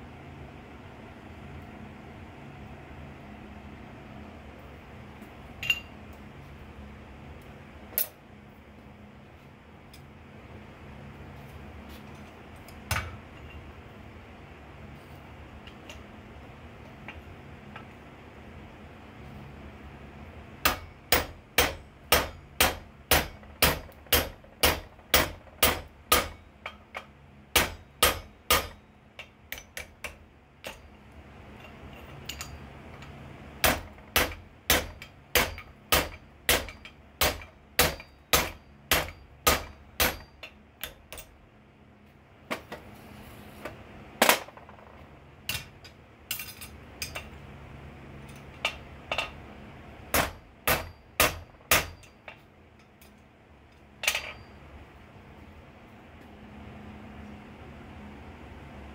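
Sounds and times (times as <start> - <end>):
steady low hum: 0.0 - 58.9
hammer striking punch on steel: 20.6 - 26.8, 27.5 - 28.8, 33.6 - 41.0, 50.1 - 52.2.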